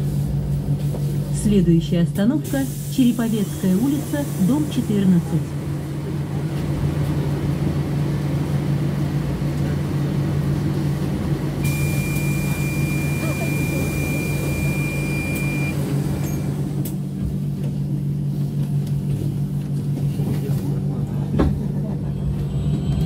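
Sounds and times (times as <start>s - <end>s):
high beep: 11.6s - 16.5s.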